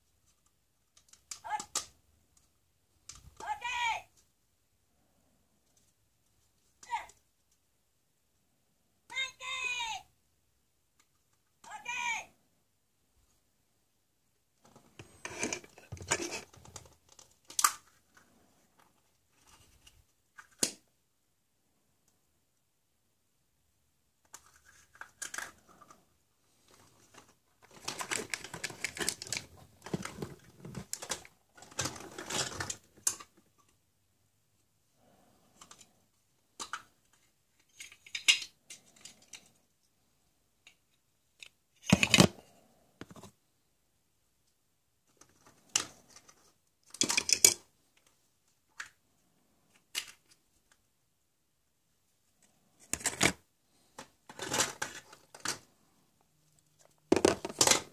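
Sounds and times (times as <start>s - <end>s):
plastic clicking and rattling: 0.2s - 3.4s, 14.6s - 20.8s, 24.2s - 26.0s, 26.6s - 33.8s, 36.5s - 39.6s, 40.6s - 42.4s, 45.0s - 49.0s, 49.7s - 50.8s, 52.8s - 55.7s, 56.7s - 57.9s
plastic clacks: 26.7s - 33.8s, 36.5s - 39.6s, 41.4s - 42.4s, 56.8s - 57.9s.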